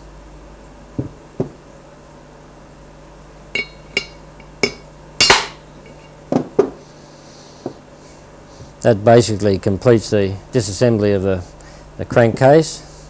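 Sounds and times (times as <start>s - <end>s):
hammer striking metal: 3.6s - 6.0s.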